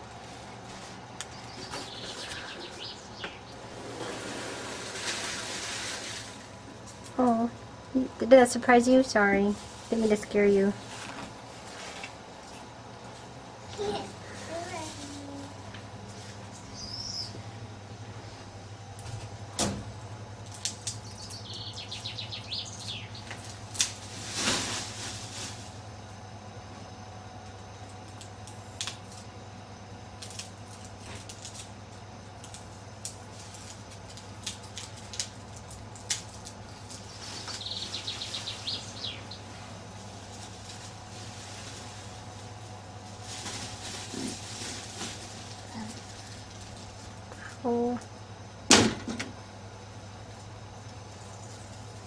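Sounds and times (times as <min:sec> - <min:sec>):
steady low hum: 0:00.0 - 0:52.0
bird chirping in trills: 0:01.3 - 0:03.6, 0:16.7 - 0:17.4, 0:21.0 - 0:23.3, 0:37.1 - 0:39.4
foam packing peanuts rustling: 0:03.6 - 0:07.5, 0:08.4 - 0:12.2, 0:13.8 - 0:17.0, 0:22.8 - 0:26.1, 0:30.2 - 0:47.3.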